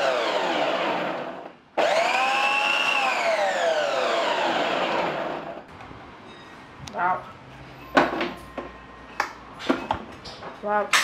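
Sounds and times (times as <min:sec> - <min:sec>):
food processor motor whining: 0:00.0 - 0:05.7.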